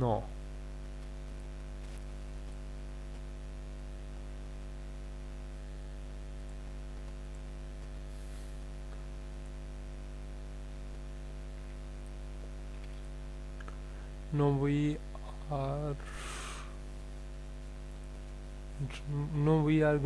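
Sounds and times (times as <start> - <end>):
electrical mains hum: 0.0 - 20.0
faint clicks: 6.4 - 8.0
faint hiss: 15.2 - 16.9.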